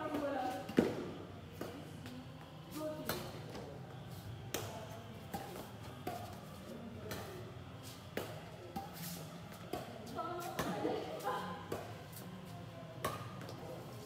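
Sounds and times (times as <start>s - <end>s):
rackets striking shuttlecock: 13.0s - 13.5s.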